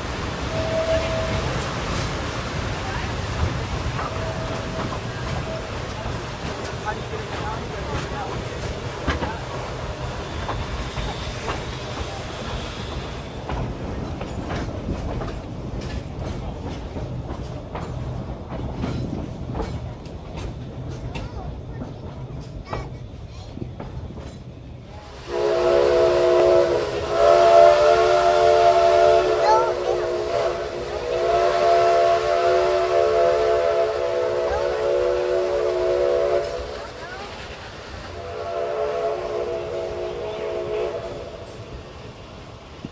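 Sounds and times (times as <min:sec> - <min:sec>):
wheels clicking on track: 0:00.0 - 0:25.3, 0:33.4 - 0:38.4
train cars rumbling: 0:00.0 - 0:42.9
steam locomotive whistle: 0:00.4 - 0:01.7, 0:04.0 - 0:06.0, 0:25.1 - 0:37.0, 0:38.1 - 0:41.7.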